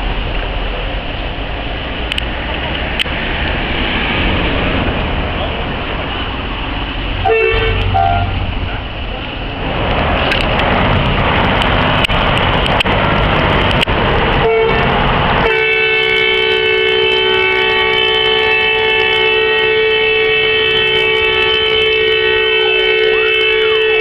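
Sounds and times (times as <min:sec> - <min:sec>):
loud rushing noise: 0:00.0 - 0:24.0
vehicle horn two-note chord: 0:07.2 - 0:08.4, 0:15.5 - 0:24.0.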